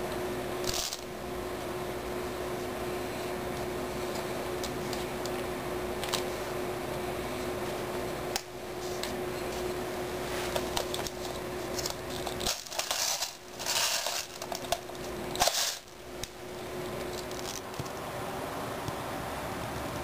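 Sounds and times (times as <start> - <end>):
rustling scrapes: 8.8 - 14.7.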